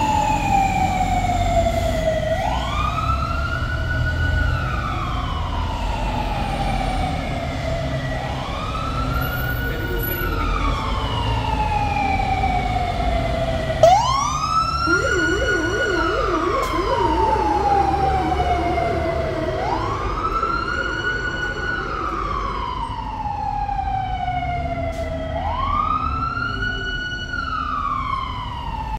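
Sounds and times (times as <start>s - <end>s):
fire engine sirens wailing: 0.0s - 28.9s
heavy engines rumbling: 0.0s - 28.9s
low fast siren warble: 10.7s - 26.0s.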